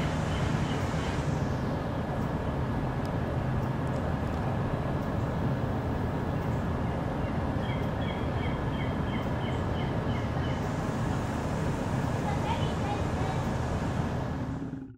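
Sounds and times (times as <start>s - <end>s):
distant engine rumble: 0.0s - 14.9s
bird chirping: 6.4s - 10.7s.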